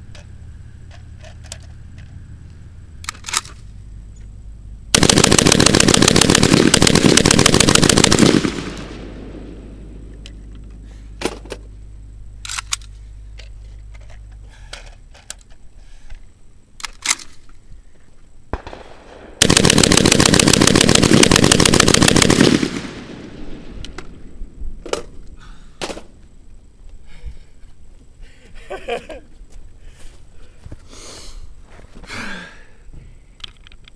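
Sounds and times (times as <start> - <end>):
metallic gun handling clicks: 3.0 - 3.6, 12.4 - 15.6, 16.8 - 17.6
rapid shotgun fire: 4.9 - 9.7, 18.5 - 23.8.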